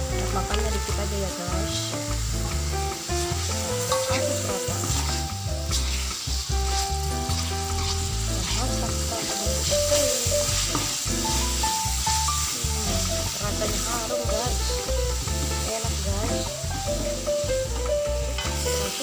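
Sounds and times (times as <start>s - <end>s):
background music: 0.0s - 19.0s
paste sizzling in hot oil: 0.0s - 19.0s
metal spoon scraping wok: 3.4s - 11.4s.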